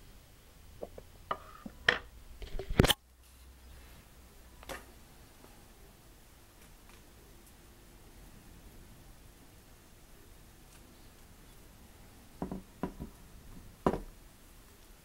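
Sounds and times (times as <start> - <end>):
knocks and clicks on wooden table: 12.4 - 13.2, 13.9 - 14.1.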